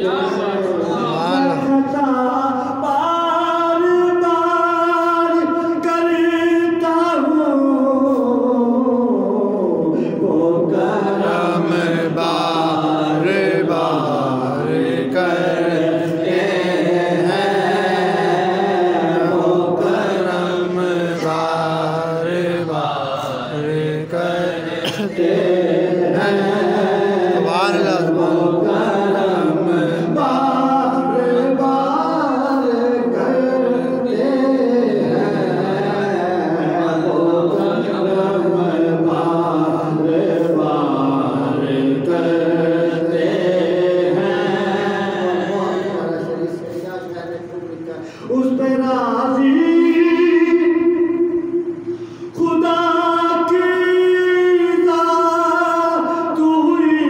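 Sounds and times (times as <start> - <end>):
man singing into a microphone: 0.0 - 16.2, 45.0 - 57.0.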